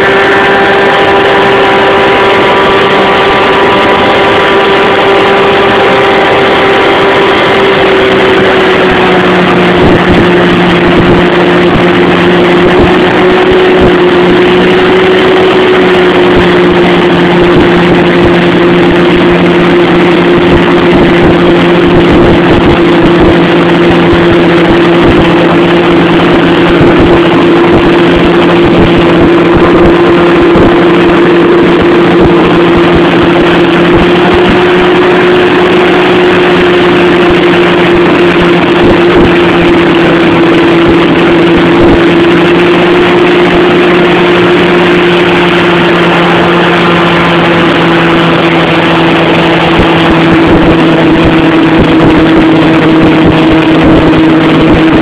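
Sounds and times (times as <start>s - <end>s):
hovercraft engine drone: 0.0s - 55.0s.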